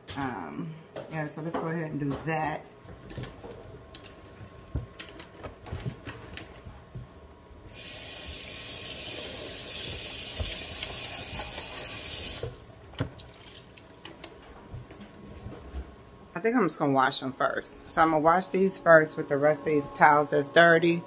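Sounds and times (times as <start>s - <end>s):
kitchen tap running: 7.7s - 14.3s.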